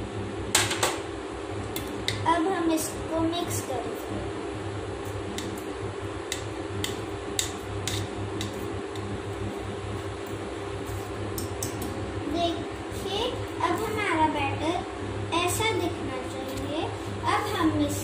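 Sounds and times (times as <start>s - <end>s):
steady low hum: 0.0s - 18.0s
whisk clicking on metal bowl: 6.3s - 9.1s
whisk beating batter: 6.3s - 11.8s.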